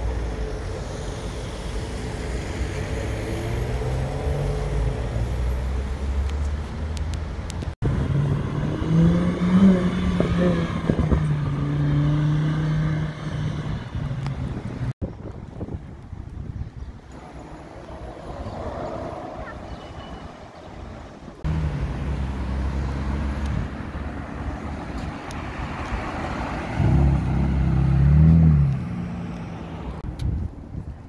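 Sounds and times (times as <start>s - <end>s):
quiet street traffic: 0.0s - 31.0s
sports car engine revving: 7.8s - 14.2s.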